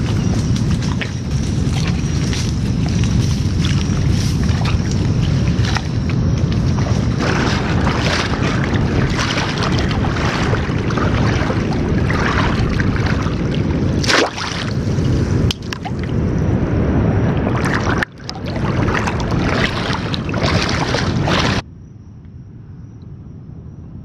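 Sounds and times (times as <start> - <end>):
legs wading through water: 0.0 - 16.2, 17.2 - 21.6
wind buffeting microphone: 0.0 - 21.6
trap splashing into water: 6.8 - 14.8.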